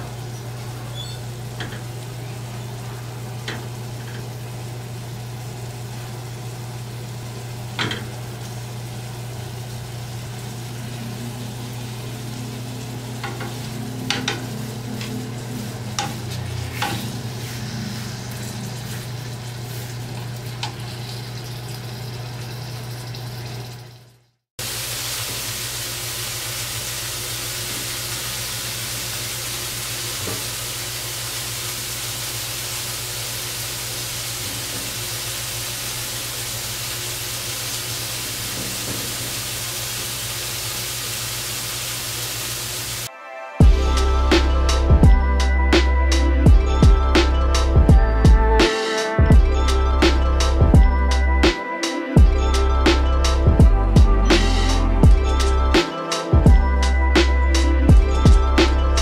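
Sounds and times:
chicken sizzling in a pan: 0.0s - 24.0s, 24.6s - 43.1s.

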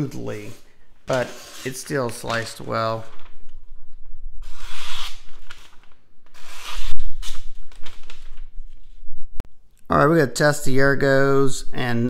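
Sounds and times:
knife slicing through newspaper: 4.4s - 5.4s.

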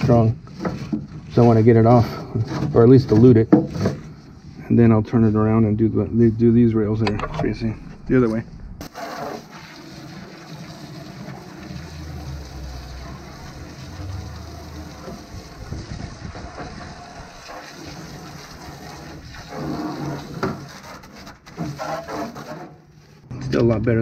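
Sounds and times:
hose spray on steel: 8.8s - 22.7s.

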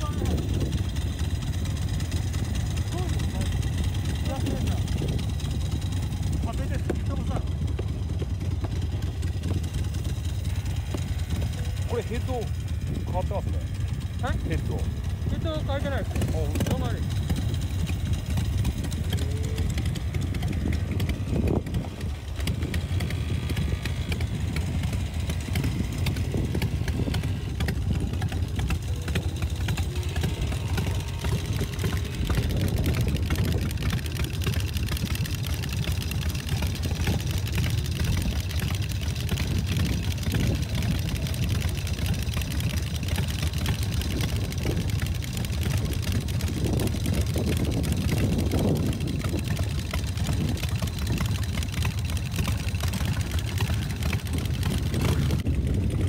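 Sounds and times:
motorcycle engines idling: 0.0s - 56.0s.

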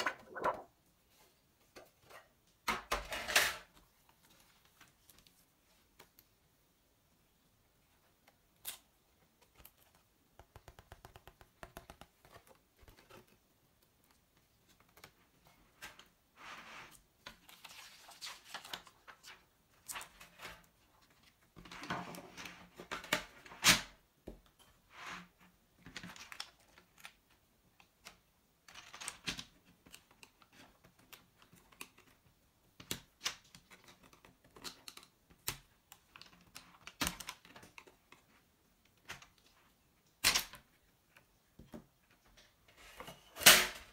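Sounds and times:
plastic sheets rustling: 0.0s - 6.0s.

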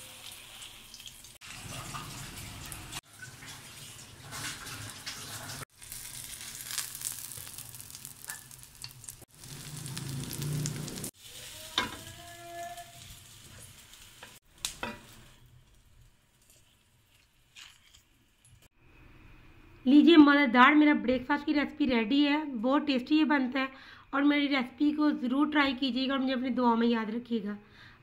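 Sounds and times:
oil sizzling in a pan: 0.0s - 18.7s.

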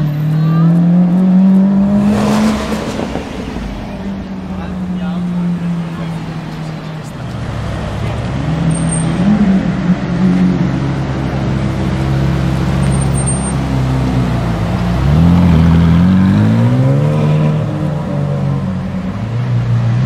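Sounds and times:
sports car engine accelerating: 0.0s - 20.0s.

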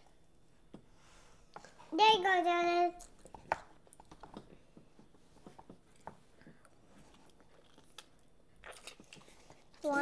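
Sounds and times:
children chewing noodles: 5.9s - 10.0s.

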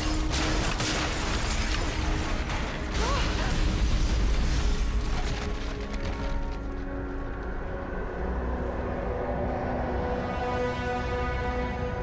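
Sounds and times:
cracks and creaks: 4.7s - 7.6s.

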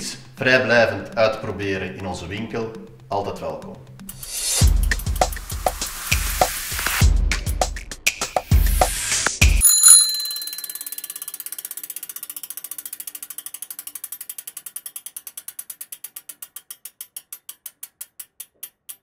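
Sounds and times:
bicycle freewheel hub ticking: 0.0s - 5.6s, 9.6s - 19.0s.

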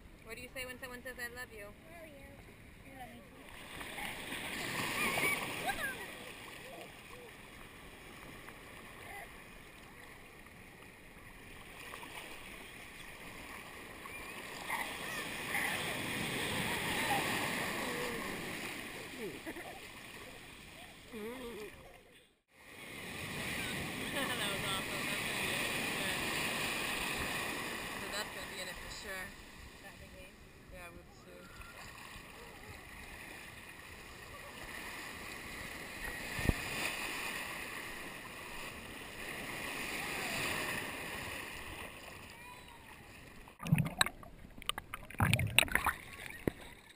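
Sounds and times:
surf washing in: 3.3s - 21.7s, 22.6s - 30.2s, 31.3s - 46.8s
seawater lapping and sloshing: 3.3s - 22.0s, 31.3s - 46.9s.

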